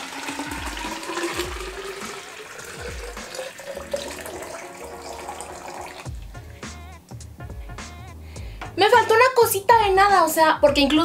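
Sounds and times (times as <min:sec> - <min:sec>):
water pouring into a tube: 0:00.0 - 0:06.2.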